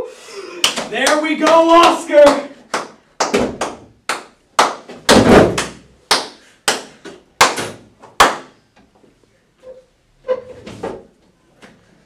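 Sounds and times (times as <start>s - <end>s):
hand claps: 0.6s - 8.6s
heavy smack: 4.6s - 8.5s.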